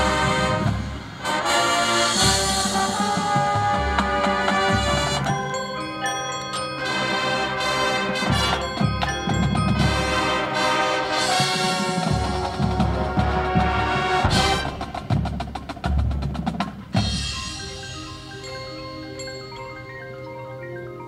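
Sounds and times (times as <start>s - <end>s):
marching band playing: 0.0s - 20.2s
marimba and mallet percussion: 2.6s - 13.6s, 14.2s - 21.0s
bass drum hits: 14.1s - 16.3s.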